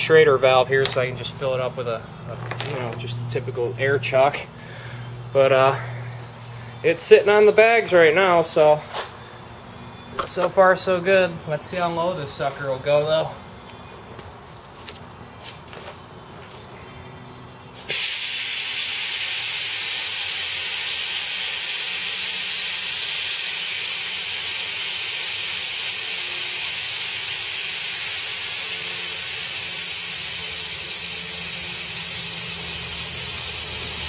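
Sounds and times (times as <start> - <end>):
compressed air hissing from valve: 17.8 - 34.0.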